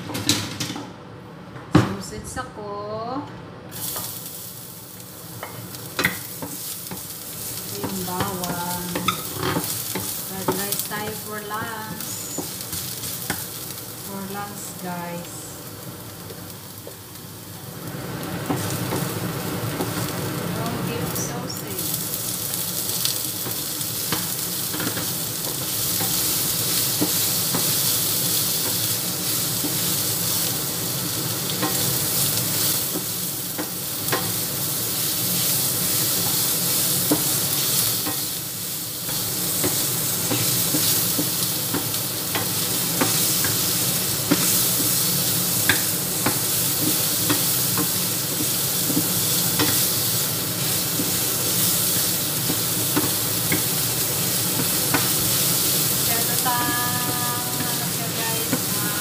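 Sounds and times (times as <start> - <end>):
sausage sizzling in hot oil: 3.7 - 59.0.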